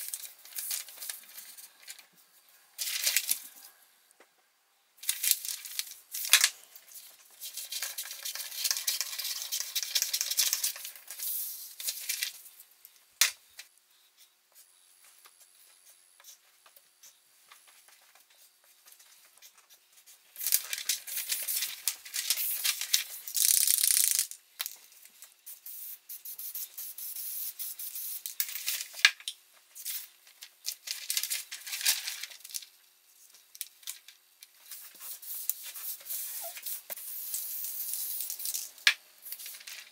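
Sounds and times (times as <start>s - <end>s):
paper rustling and crinkling: 20.4s - 23.2s, 29.9s - 36.6s.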